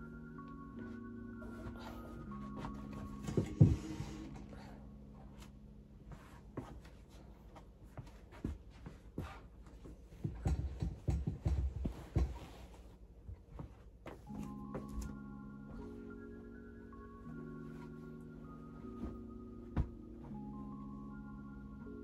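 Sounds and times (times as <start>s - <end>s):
soft handling knocks: 6.1s - 16.0s, 18.8s - 20.5s.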